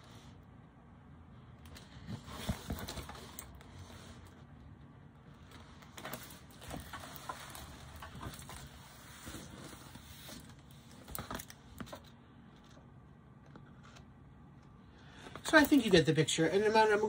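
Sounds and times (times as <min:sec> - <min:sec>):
plastic film and paper rustling: 0:05.5 - 0:12.7.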